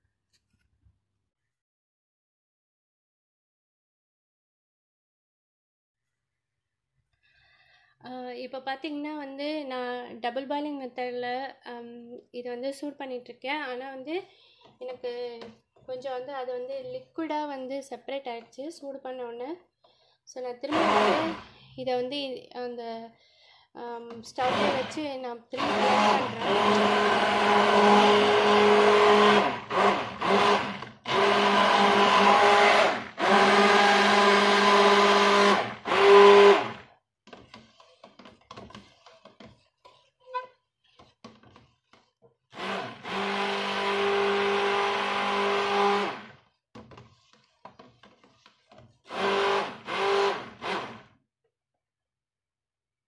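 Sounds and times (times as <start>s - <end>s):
stick blender running: 20.7s - 21.5s, 24.4s - 40.0s, 41.0s - 51.1s.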